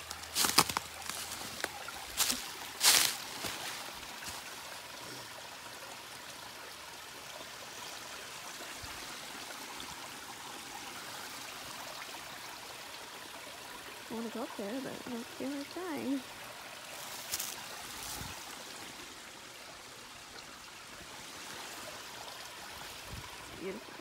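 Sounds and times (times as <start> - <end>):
footsteps crunching on dry leaves: 0.0 - 4.5, 17.0 - 18.5
creek trickling: 0.0 - 24.0.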